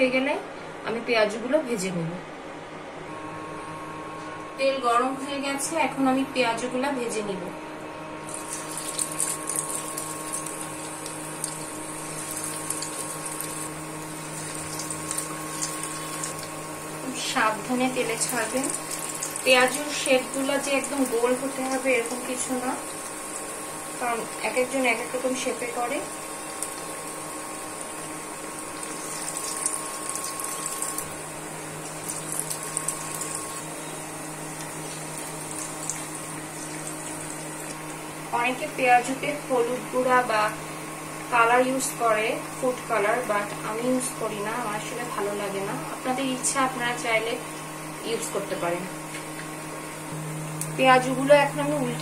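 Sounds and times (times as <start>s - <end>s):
fritters sizzling in hot oil: 8.3s - 38.2s.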